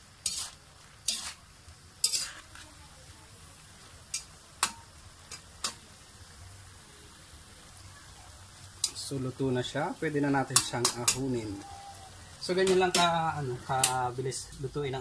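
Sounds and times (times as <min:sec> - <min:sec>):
metal spatula scraping wok: 0:00.0 - 0:02.8, 0:10.2 - 0:14.0.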